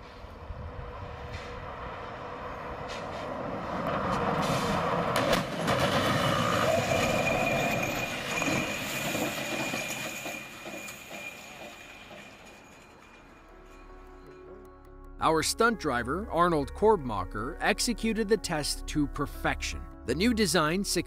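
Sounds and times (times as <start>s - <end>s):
truck crashing into nets: 4.0s - 7.3s
steady high squeal: 6.2s - 14.5s.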